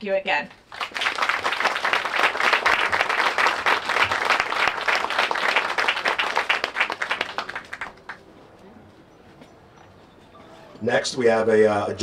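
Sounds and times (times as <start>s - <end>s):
audience applauding: 0.7s - 8.2s.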